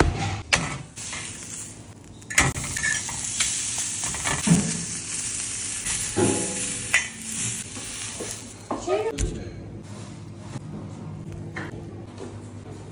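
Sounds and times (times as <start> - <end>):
steak sizzling on griddle: 1.0 - 8.7.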